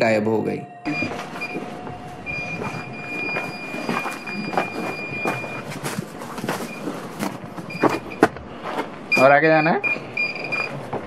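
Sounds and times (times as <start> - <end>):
high-pitched electronic meter tone: 0.6 - 5.9, 9.1 - 10.8.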